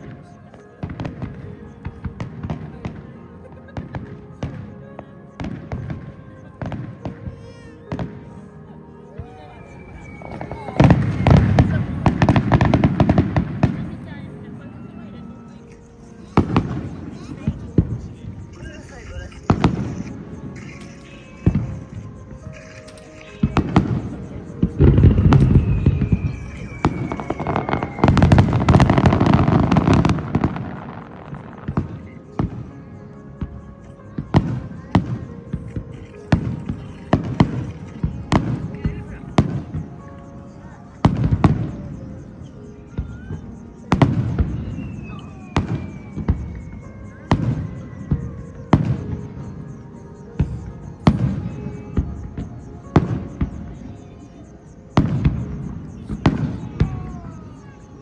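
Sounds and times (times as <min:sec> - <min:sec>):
fireworks booming: 0:00.0 - 0:08.4, 0:09.1 - 0:14.6, 0:16.1 - 0:54.1, 0:54.9 - 0:57.9
fireworks crackling: 0:00.0 - 0:58.0
firework bangs: 0:09.2 - 0:14.6, 0:16.2 - 0:32.8, 0:33.4 - 0:40.2, 0:41.0 - 0:42.2, 0:42.9 - 0:49.8, 0:50.4 - 0:53.9, 0:54.9 - 0:57.8.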